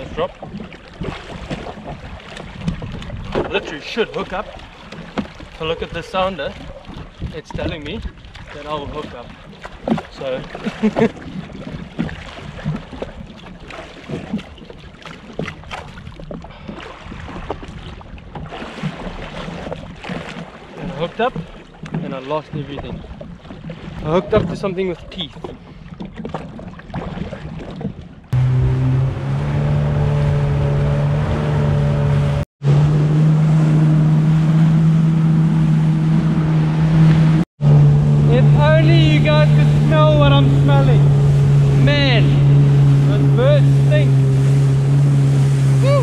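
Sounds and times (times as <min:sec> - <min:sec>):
water slapping against hull: 0:00.0 - 0:28.4, 0:33.4 - 0:46.0
low rumble of wind and water: 0:00.0 - 0:46.0
jet ski engine drone: 0:28.3 - 0:46.0
rushing water and spray: 0:28.3 - 0:46.0.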